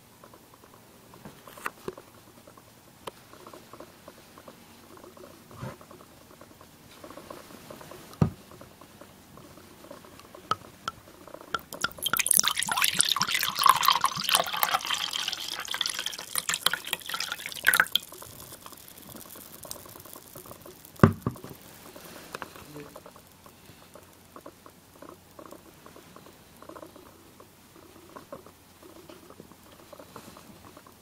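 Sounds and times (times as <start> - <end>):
wine pouring into a mug: 11.6 - 20.4.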